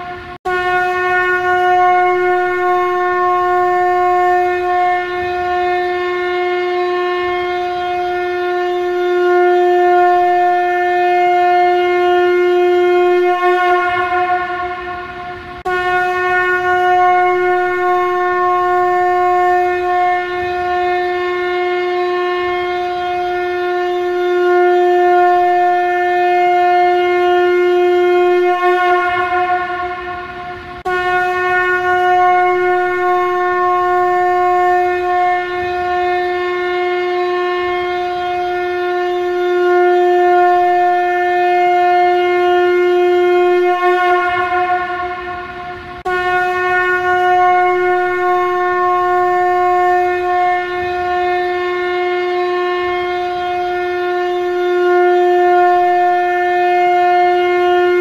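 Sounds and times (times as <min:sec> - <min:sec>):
conch shell trumpet blasts: 0:00.0 - 0:58.0.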